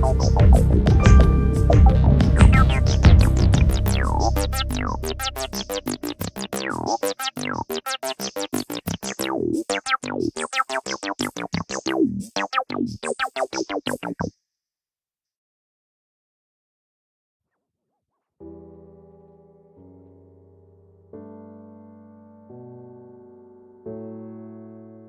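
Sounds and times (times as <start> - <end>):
low bass: 0.0 - 7.0
fast keyboard notes: 0.0 - 14.3.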